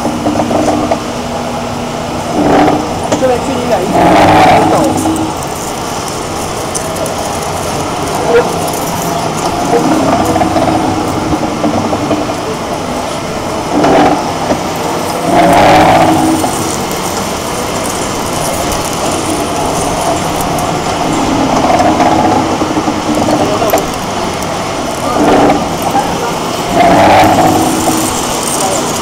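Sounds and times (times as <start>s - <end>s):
pipe cutting machine running: 0.0s - 29.0s.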